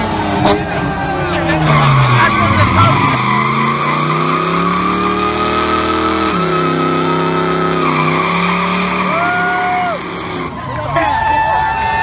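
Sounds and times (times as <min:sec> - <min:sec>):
car engine revving high: 0:00.0 - 0:10.7
tyres squealing: 0:01.3 - 0:10.5.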